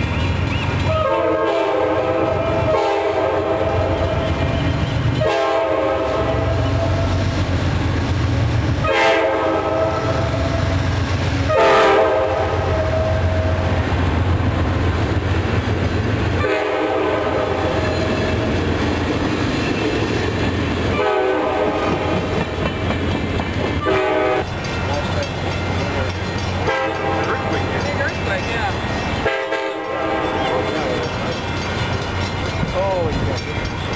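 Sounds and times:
train rumbling past: 0:00.0 - 0:33.9
train horn blasts: 0:00.8 - 0:04.6, 0:05.2 - 0:07.4, 0:08.8 - 0:13.8, 0:16.4 - 0:18.5, 0:20.9 - 0:22.3, 0:23.8 - 0:24.7, 0:26.6 - 0:27.7, 0:29.2 - 0:31.0.

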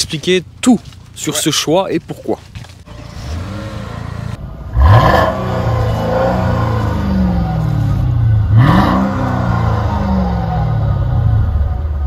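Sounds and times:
car engine revving: 0:02.9 - 0:12.0.

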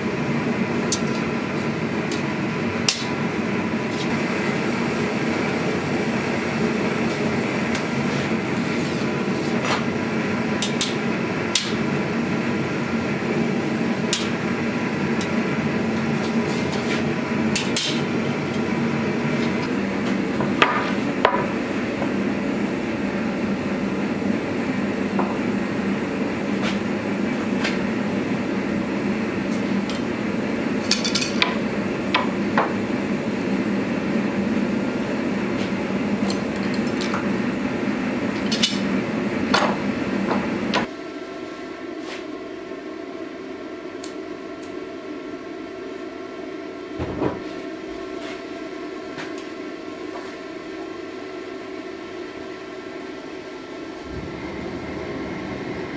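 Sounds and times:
low hum: 0:54.0 - 0:55.9
steady roar: 0:54.0 - 0:55.9.

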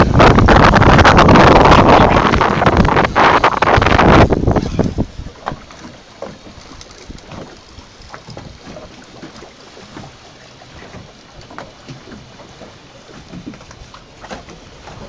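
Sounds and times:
wind on microphone: 0:00.0 - 0:09.0
water lapping against boat hull: 0:00.0 - 0:15.0.

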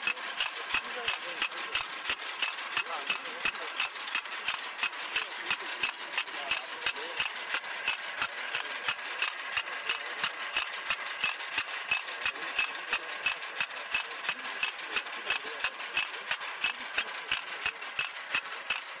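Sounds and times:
fast mechanical clicking: 0:00.0 - 0:19.0
small engine humming: 0:00.0 - 0:19.0.

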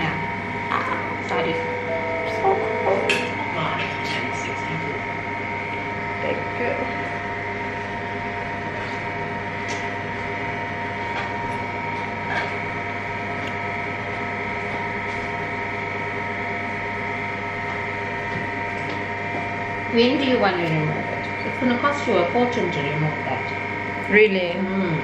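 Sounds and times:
machine electrical hum: 0:00.0 - 0:25.0.

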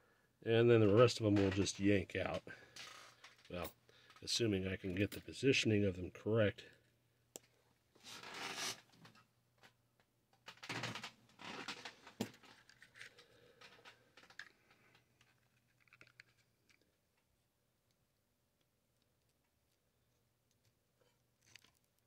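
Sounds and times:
scratching and rustling hand work: 0:08.0 - 0:09.2, 0:10.5 - 0:22.0.

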